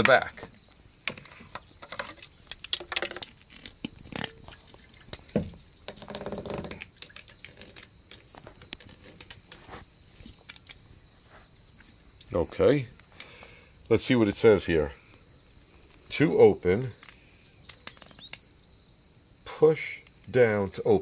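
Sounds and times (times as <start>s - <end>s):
insects chirping: 0.0s - 21.0s
rustling: 1.1s - 12.3s.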